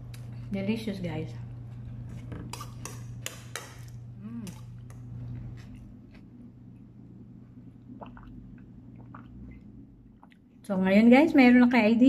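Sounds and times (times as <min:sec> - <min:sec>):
steady low hum: 0:00.0 - 0:12.0
faint eating sounds: 0:01.3 - 0:10.9
person humming: 0:04.2 - 0:04.6.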